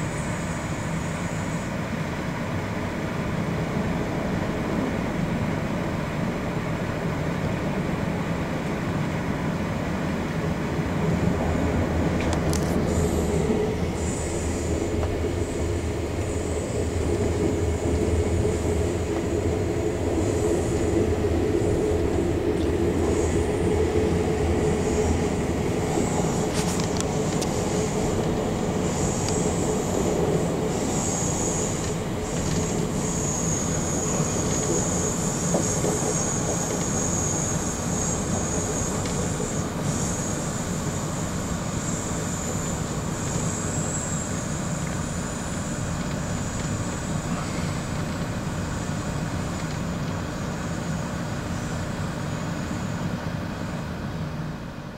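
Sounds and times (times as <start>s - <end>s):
train wheels rumbling on rails: 0.0s - 54.9s
high wheel squeal: 24.7s - 48.0s.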